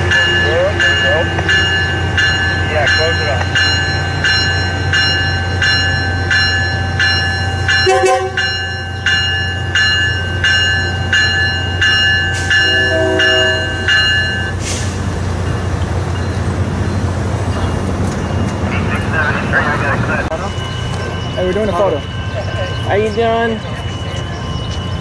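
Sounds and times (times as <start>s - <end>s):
bell ringing: 0.0s - 14.6s, 20.3s - 25.0s
train humming: 0.0s - 25.0s.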